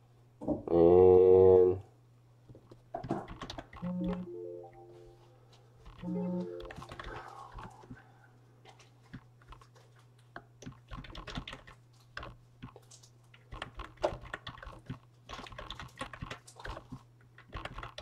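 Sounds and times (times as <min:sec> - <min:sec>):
low electrical hum: 0:00.0 - 0:18.0
keyboard typing clicks: 0:03.1 - 0:04.9, 0:05.8 - 0:07.8, 0:10.6 - 0:18.0.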